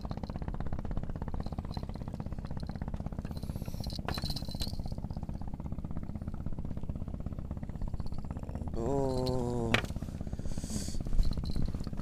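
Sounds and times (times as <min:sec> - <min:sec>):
small engine running: 0:00.0 - 0:12.0
metallic clink: 0:03.3 - 0:05.0.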